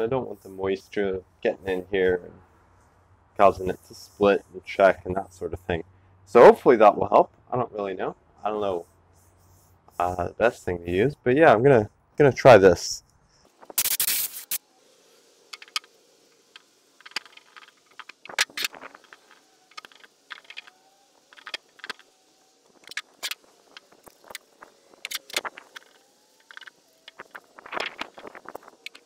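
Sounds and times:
cloth rag rubbing wood: 8.8 - 10.2
loud rustle: 26.6 - 29.0.

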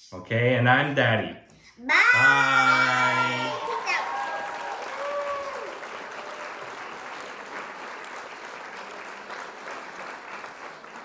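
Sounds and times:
crowd applauding: 3.0 - 11.0.

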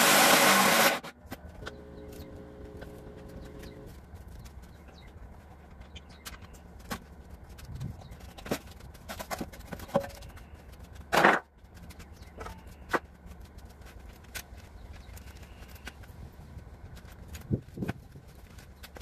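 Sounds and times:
metal knocks and clanks on concrete: 11.1 - 11.5.

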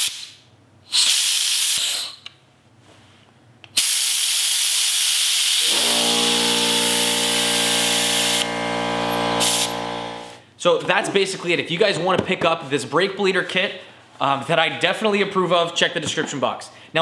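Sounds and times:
compressed air hissing: 0.0 - 2.2, 3.8 - 9.9
steady low hum: 5.7 - 10.5.

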